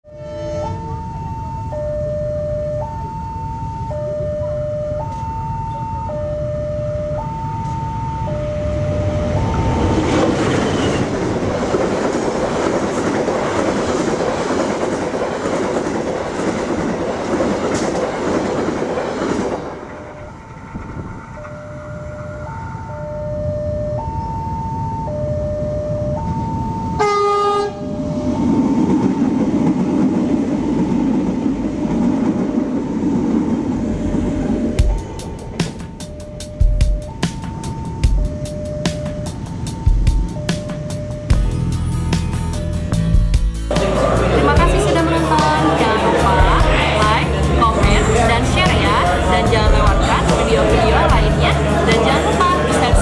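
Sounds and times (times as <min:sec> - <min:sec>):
train horn blast: 0:00.1 - 0:01.0, 0:27.0 - 0:28.1
level crossing alarm two-tone: 0:00.1 - 0:11.0, 0:21.3 - 0:29.1, 0:34.6 - 0:43.5
train coaches clattering past: 0:07.1 - 0:22.9, 0:26.4 - 0:53.0.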